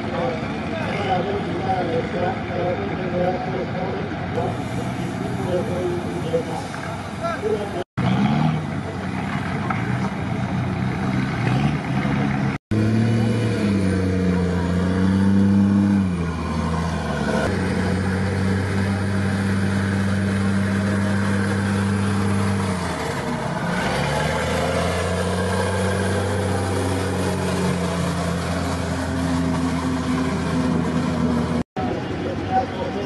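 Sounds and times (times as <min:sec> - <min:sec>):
armored vehicle diesel engine: 0:00.0 - 0:33.0.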